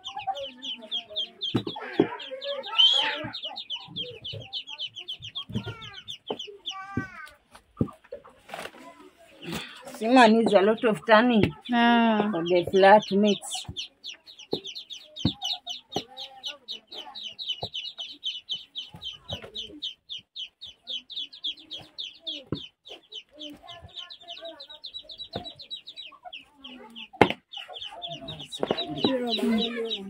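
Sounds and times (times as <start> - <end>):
chicks peeping: 0.0 - 30.0
hen clucking: 0.0 - 30.0.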